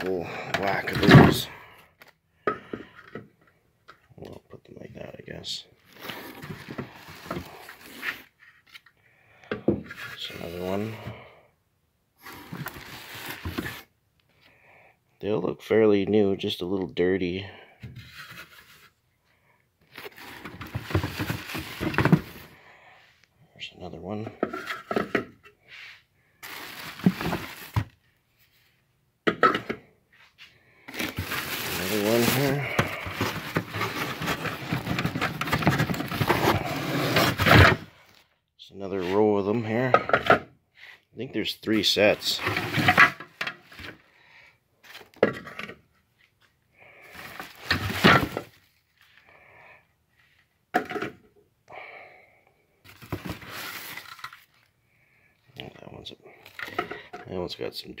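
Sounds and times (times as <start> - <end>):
plastic packaging rustling: 12.2 - 13.9, 19.9 - 22.5, 26.4 - 28.0, 30.9 - 37.8, 52.9 - 54.7.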